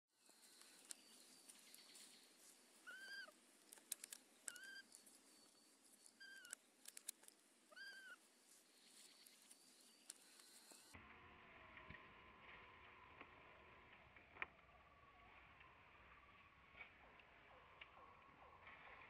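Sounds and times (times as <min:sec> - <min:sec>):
monkey coo calls: 0:02.8 - 0:03.4, 0:07.7 - 0:08.2
faint sharp clicks: 0:03.6 - 0:07.4, 0:09.0 - 0:11.0.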